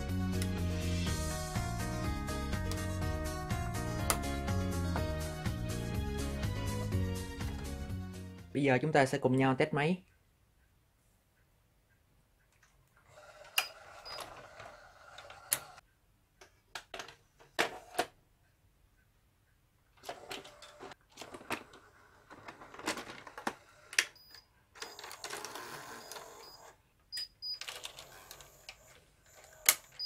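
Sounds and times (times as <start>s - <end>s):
cassette drawer whirring and clicking: 13.1s - 15.8s, 20.0s - 24.2s.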